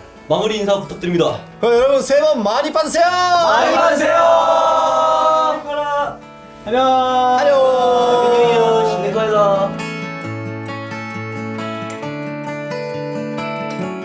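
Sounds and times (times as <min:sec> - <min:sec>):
acoustic guitar music: 0:00.0 - 0:14.0
young men cheering: 0:03.0 - 0:06.2, 0:06.8 - 0:09.6.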